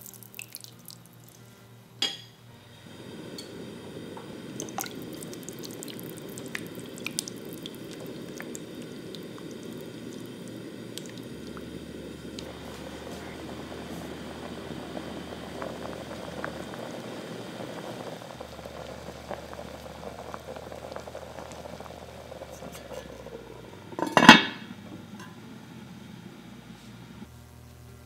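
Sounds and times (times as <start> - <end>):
soup bubbling in a pot: 0.0 - 1.4, 2.8 - 27.3
pot lid clanking: 22.5 - 25.4.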